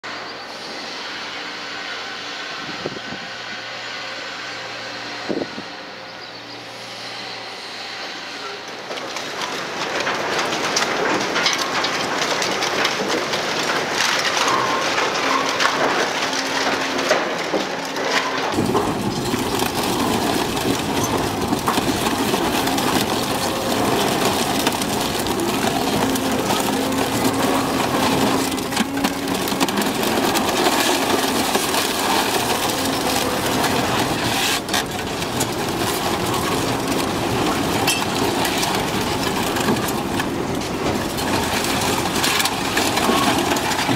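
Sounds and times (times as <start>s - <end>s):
shredder grinding car bodies: 8.6s - 43.9s
metal and plastic cracking: 8.9s - 43.9s.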